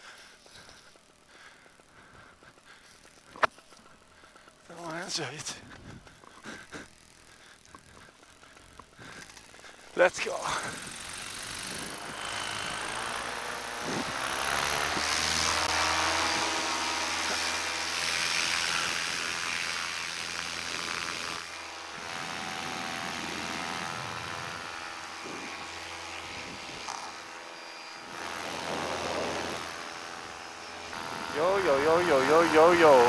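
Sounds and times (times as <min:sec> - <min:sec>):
paramotor engine revving: 0:10.4 - 0:33.0
wind noise on microphone: 0:10.7 - 0:12.2.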